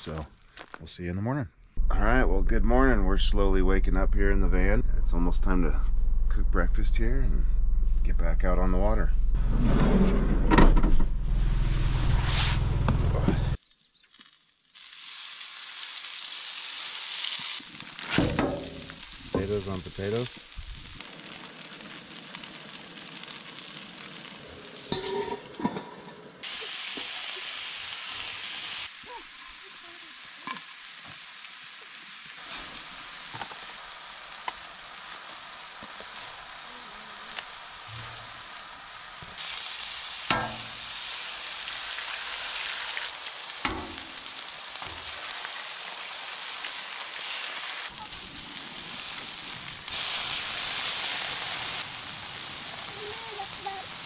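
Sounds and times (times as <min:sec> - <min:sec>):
potatoes sizzling in a pan: 0:13.5 - 0:54.0.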